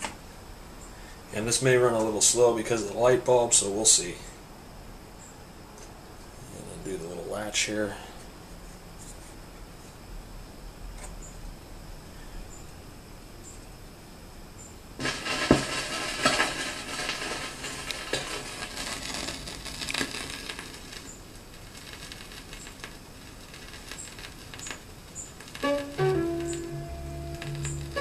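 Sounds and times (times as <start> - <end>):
vinyl crackle and pops: 15.0 - 28.0.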